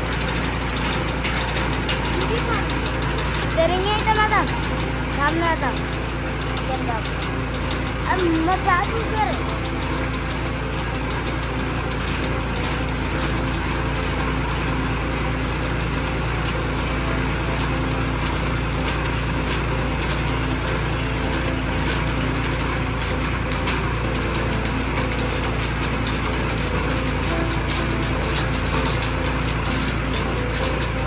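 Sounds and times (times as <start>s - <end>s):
auger gears clicking rattle: 0.0s - 31.0s
tractor engine running: 0.0s - 31.0s.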